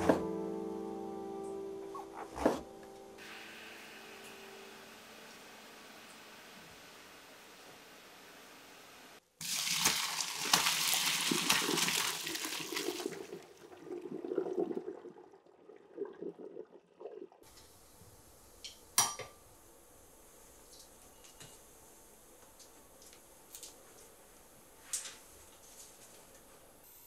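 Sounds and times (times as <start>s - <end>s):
water splashing into a colander: 9.4s - 15.0s
water trickling and gurgling: 9.9s - 17.5s.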